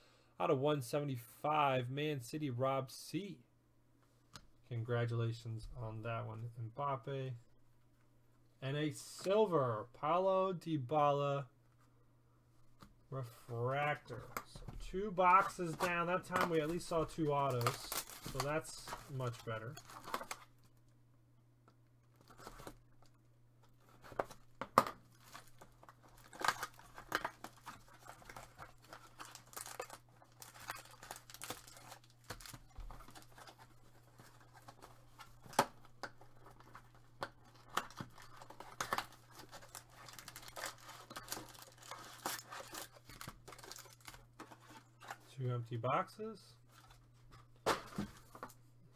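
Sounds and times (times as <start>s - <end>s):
cardboard and foil rustling: 15.2s - 20.6s, 23.8s - 45.1s.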